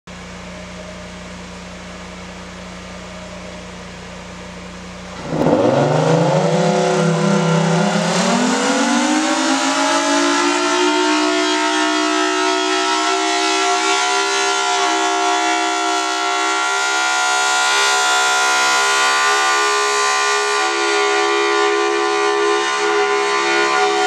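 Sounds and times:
steady low hum: 0:00.1 - 0:10.1
civil defense siren wailing: 0:00.2 - 0:24.0.

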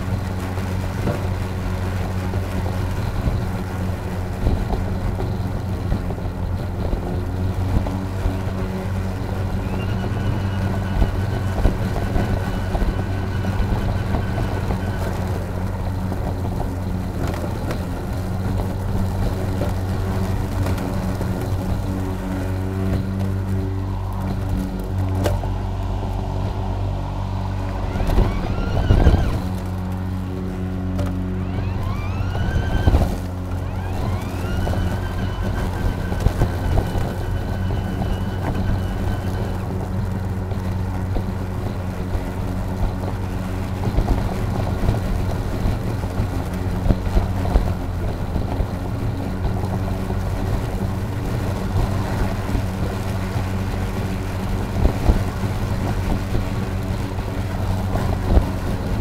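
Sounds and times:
lawn mower motor and blade hum: 0:00.0 - 0:59.0
rising high whine: 0:00.0 - 0:59.0.

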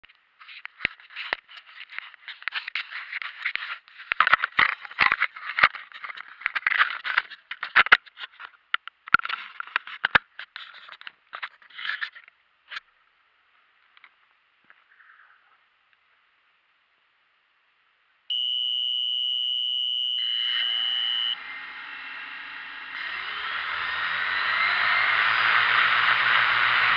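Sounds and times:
faint steady hiss: 0:12.2 - 0:21.4.

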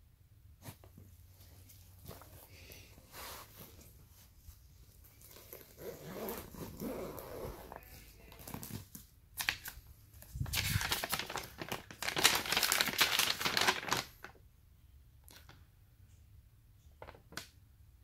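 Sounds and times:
fabric case rustling: 0:00.6 - 0:08.8
paper leaflet crinkling: 0:09.4 - 0:14.4.

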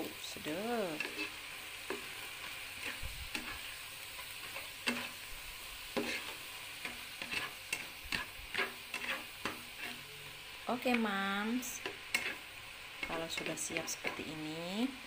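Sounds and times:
vegetables sizzling in a pan: 0:00.0 - 0:15.0
spatula scraping and knocking pan: 0:00.9 - 0:05.2, 0:05.9 - 0:10.0, 0:11.8 - 0:14.3.

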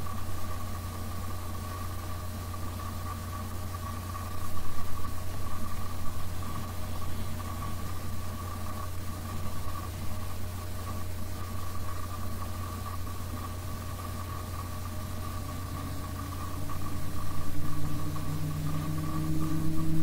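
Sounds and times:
low engine hum: 0:00.0 - 0:20.0
rising tone: 0:15.9 - 0:20.0.

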